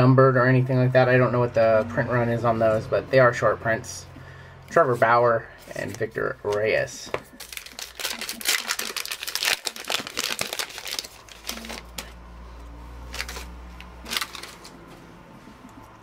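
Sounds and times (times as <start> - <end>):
cards shuffled by hand: 5.0 - 12.2, 13.0 - 15.9.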